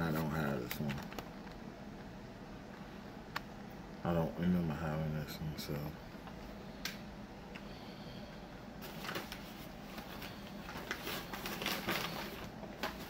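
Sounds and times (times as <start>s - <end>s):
plastic packaging clicking and rustling: 0.5s - 1.6s, 8.8s - 13.0s.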